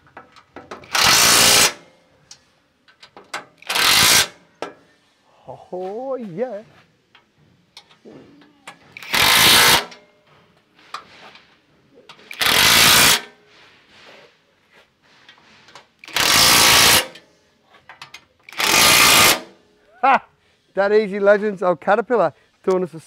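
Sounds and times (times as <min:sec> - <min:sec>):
impact wrench hammering bolts: 0:00.0 - 0:01.8, 0:02.9 - 0:04.8, 0:08.7 - 0:10.0, 0:12.1 - 0:13.3, 0:16.0 - 0:17.2, 0:17.9 - 0:19.6.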